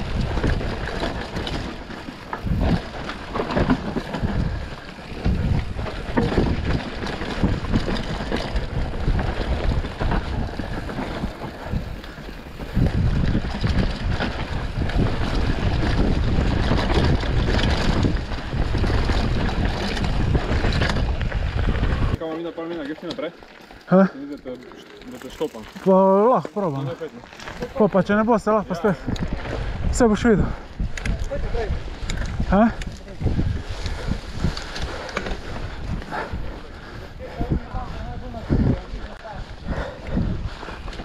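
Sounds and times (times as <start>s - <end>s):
wind buffeting microphone: 0.0s - 22.2s, 27.6s - 41.0s
bike knocks and rattles: 0.0s - 28.2s
tyres rolling on dirt: 0.0s - 41.0s.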